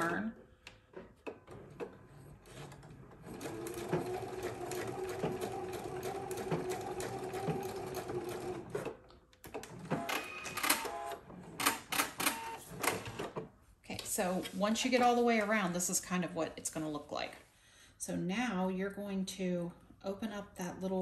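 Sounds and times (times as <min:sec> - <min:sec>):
sewing machine stitching: 0:01.3 - 0:13.4
short clicks and whirs: 0:08.8 - 0:13.4.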